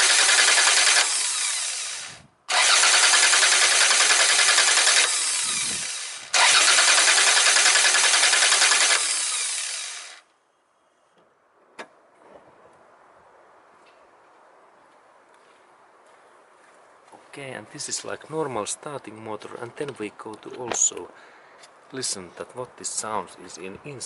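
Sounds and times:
car starter motor cranking: 0.0s - 10.2s.

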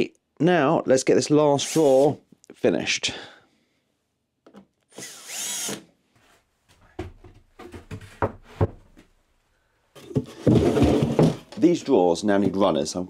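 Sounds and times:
cordless drill whine: 4.9s - 5.8s
wooden knocks and thunks: 6.8s - 9.1s, 10.0s - 11.6s.

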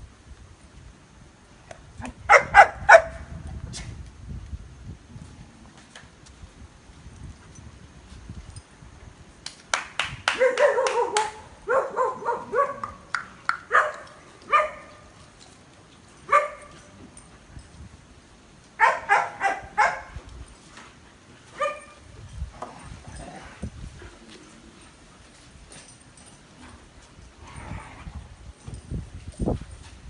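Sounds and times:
dogs barking: 2.3s - 3.2s, 10.4s - 13.1s, 13.7s - 14.9s, 16.3s - 16.7s, 18.8s - 20.1s.

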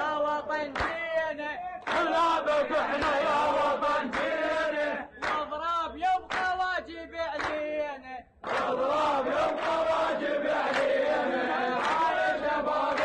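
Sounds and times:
crowd of men chanting: 0.0s - 7.8s, 8.4s - 13.0s
man's voice leading chant: 0.0s - 8.3s.

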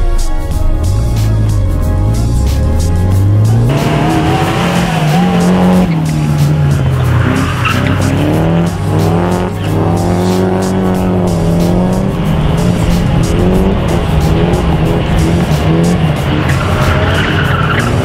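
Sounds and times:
car engine revving: 0.9s - 18.0s
tyres squealing: 3.5s - 11.4s, 14.9s - 18.0s.

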